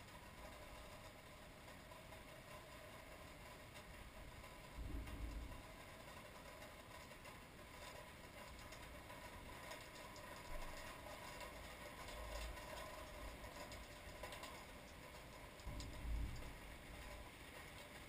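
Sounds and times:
light ticks: 0:00.0 - 0:18.0
faint low thunder rumbling: 0:04.7 - 0:06.0, 0:15.7 - 0:17.3.

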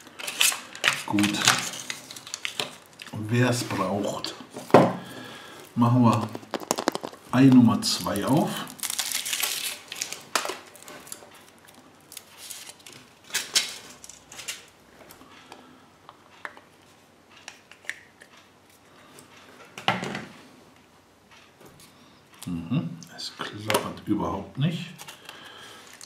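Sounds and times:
chocolate shell crackling: 0:00.0 - 0:04.2, 0:05.1 - 0:14.6.

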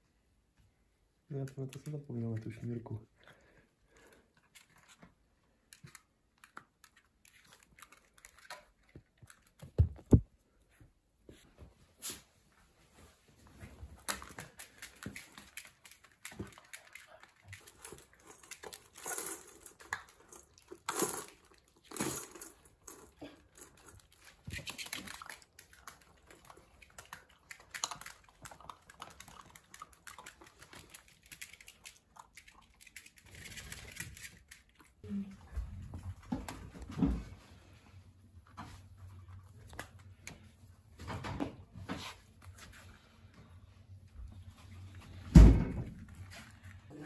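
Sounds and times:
puppy crunching kibble: 0:04.4 - 0:10.1, 0:14.0 - 0:35.0
kibble rattling against bowl: 0:14.2 - 0:34.7.

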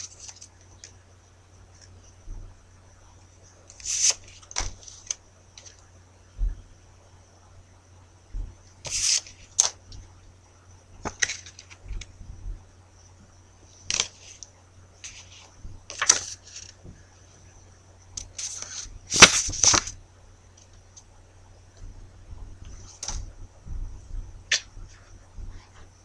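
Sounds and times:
paper cards rustling: 0:00.0 - 0:00.5, 0:03.7 - 0:05.8, 0:08.8 - 0:10.0, 0:11.0 - 0:12.1, 0:13.9 - 0:16.8, 0:18.2 - 0:20.0
electrical hum: 0:00.0 - 0:26.0
faint high whine: 0:00.0 - 0:26.0.

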